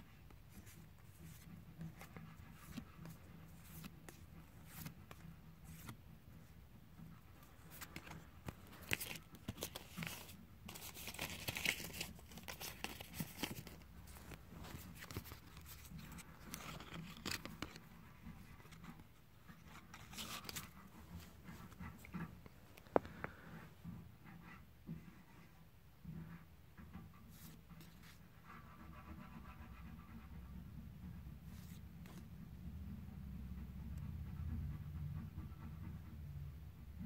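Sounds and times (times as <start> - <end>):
trading cards slapping and rustling: 0.4 - 6.0, 7.4 - 23.3.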